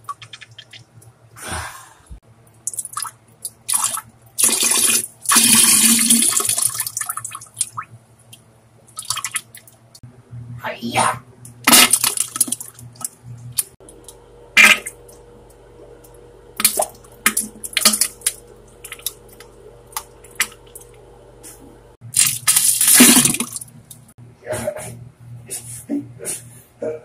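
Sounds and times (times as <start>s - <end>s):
wet spluttering farts: 14.6s - 15.0s, 22.2s - 23.6s.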